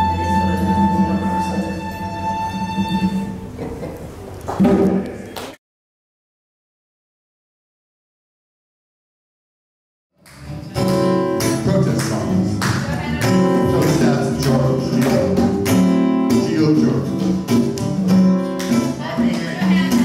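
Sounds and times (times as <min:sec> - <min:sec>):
band playing guitars: 0:00.0 - 0:05.1, 0:10.2 - 0:20.0.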